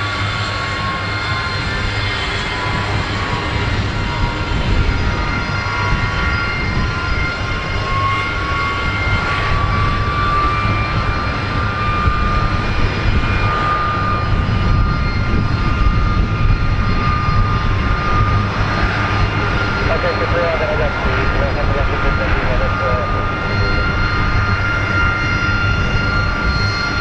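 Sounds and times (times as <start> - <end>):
jet engine high whine: 0.0 - 27.0
jet engines deep rumble: 0.0 - 27.0.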